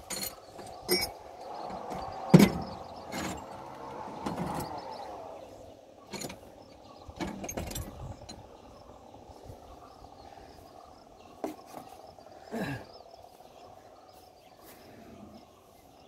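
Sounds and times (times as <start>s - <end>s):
clicks and knocks of engine parts: 0.0s - 5.0s, 6.0s - 8.5s.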